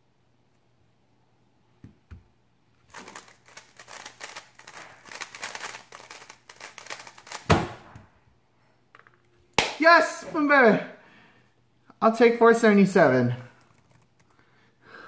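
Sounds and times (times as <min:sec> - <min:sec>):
rapid plastic clicks of puzzle cube: 0:02.9 - 0:07.5, 0:13.5 - 0:14.4.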